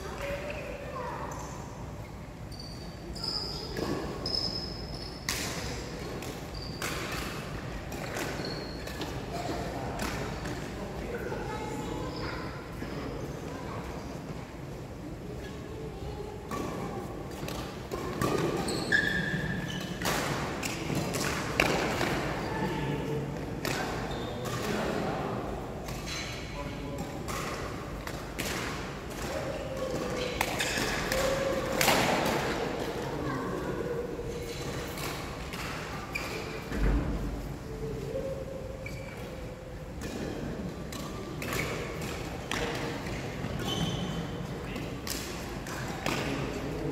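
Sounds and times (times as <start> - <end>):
sneakers squeaking on court: 2.5 - 5.3, 6.4 - 7.2, 8.0 - 9.0, 18.3 - 20.0, 43.5 - 44.3
racket hitting shuttlecock: 27.0 - 33.0, 44.8 - 46.5.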